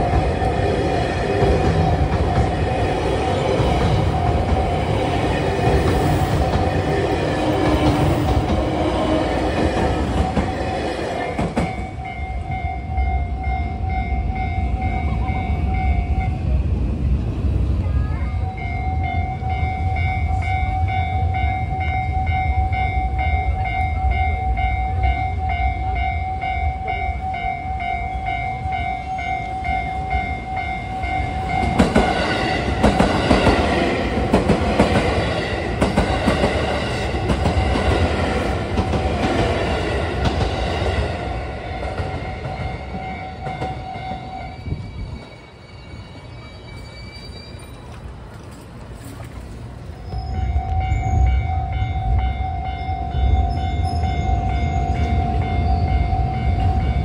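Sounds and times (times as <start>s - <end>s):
train wheels clattering: 0.0s - 12.5s, 29.8s - 45.4s.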